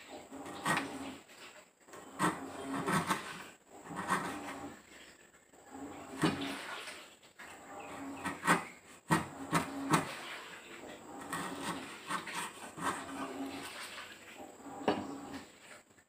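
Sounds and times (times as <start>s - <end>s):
chisel scraping wood: 0.2s - 1.2s, 1.9s - 4.8s, 7.6s - 10.4s, 11.1s - 13.7s.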